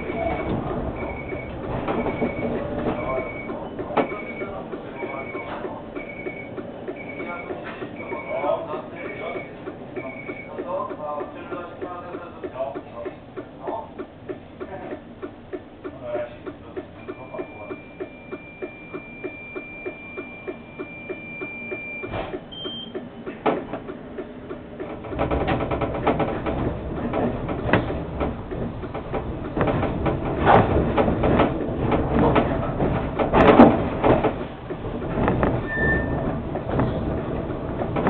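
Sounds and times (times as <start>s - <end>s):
steady high beep: 0.0s - 10.6s, 17.0s - 22.9s
rhythmic ticking: 0.0s - 23.1s
clunks: 0.0s - 38.0s
tram running on rails: 0.0s - 38.0s.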